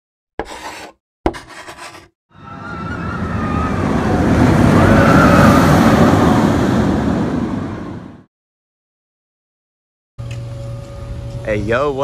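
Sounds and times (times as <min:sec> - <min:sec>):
rushing roller coaster car whistle: 0:02.3 - 0:08.3.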